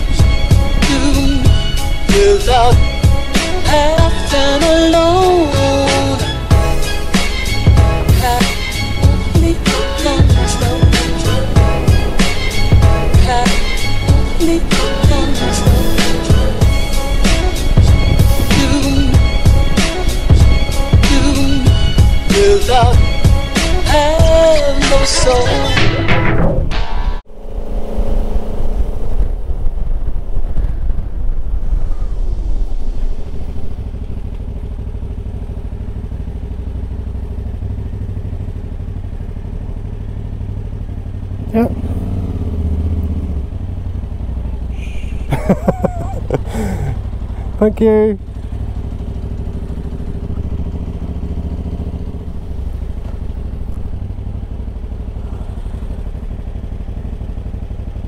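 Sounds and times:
motorcycle engine running: 0:00.0 - 0:26.2, 0:27.3 - 0:58.0
wind buffeting microphone: 0:16.5 - 0:22.3, 0:27.3 - 0:34.5.

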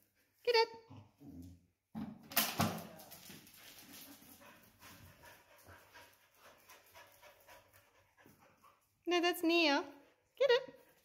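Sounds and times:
dog panting: 0:03.6 - 0:09.2.

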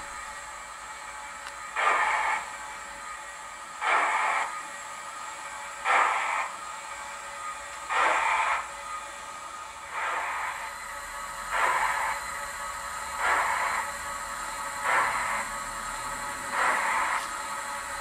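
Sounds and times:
steam exhaust chuffs from loudspeaker: 0:00.0 - 0:03.2, 0:07.4 - 0:09.1, 0:09.8 - 0:18.0.

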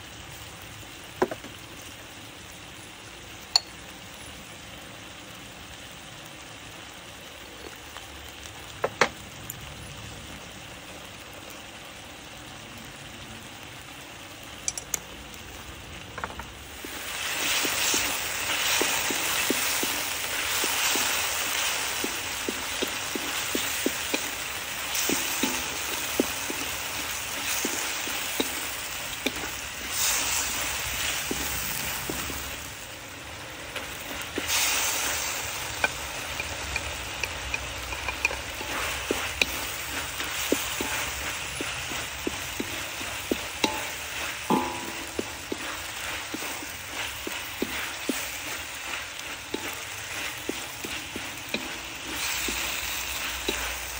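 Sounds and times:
chicken sizzling in a wok: 0:00.0 - 0:53.9
spatula scraping a wok: 0:16.8 - 0:32.8, 0:33.6 - 0:53.9.

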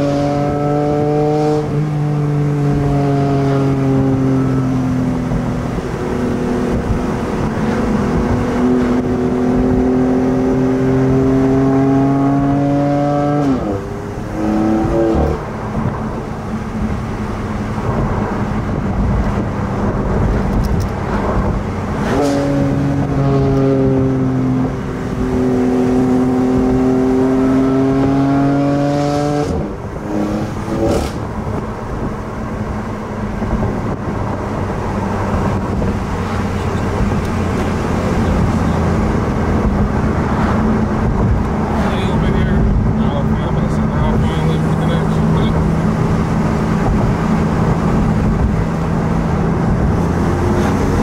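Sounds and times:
car engine from inside cabin: 0:00.0 - 0:51.0
road noise: 0:00.0 - 0:51.0
exhaust cracks: 0:29.5 - 0:50.0.

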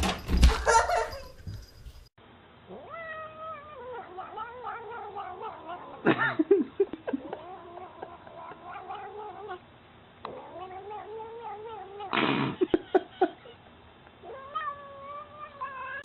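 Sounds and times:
cat yowling: 0:02.7 - 0:06.0, 0:14.2 - 0:16.0.

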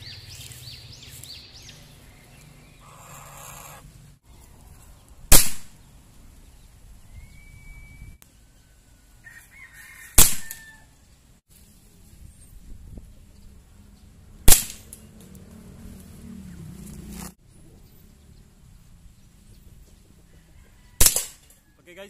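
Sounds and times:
faint chicken calling: 0:01.1 - 0:03.9, 0:07.2 - 0:11.0, 0:20.2 - 0:21.9
air rifle shots: 0:05.3 - 0:05.8, 0:10.2 - 0:10.6, 0:14.5 - 0:14.9, 0:21.0 - 0:21.4.

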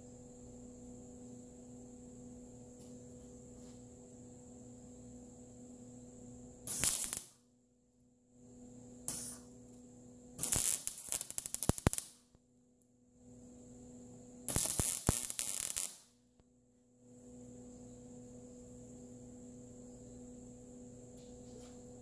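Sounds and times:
steady electrical hum: 0:00.0 - 0:22.0
welding arc crackling: 0:06.7 - 0:07.4, 0:09.1 - 0:09.6, 0:10.4 - 0:12.3, 0:14.5 - 0:16.1.

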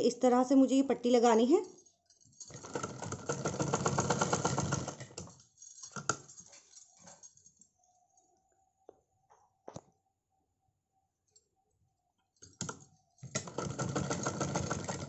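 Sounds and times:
sewing machine stitching: 0:02.5 - 0:05.3, 0:13.2 - 0:15.0.

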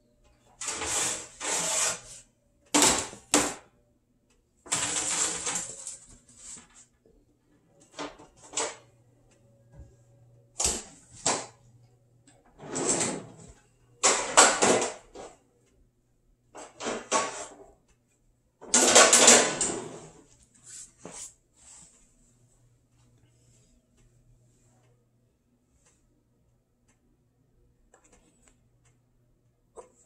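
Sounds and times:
blade scraping through dough: 0:00.6 - 0:02.2.

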